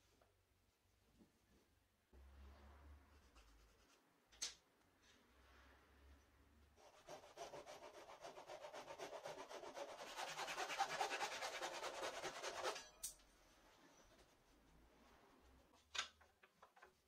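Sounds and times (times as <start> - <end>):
hand saw cutting wood: 6.9 - 12.9.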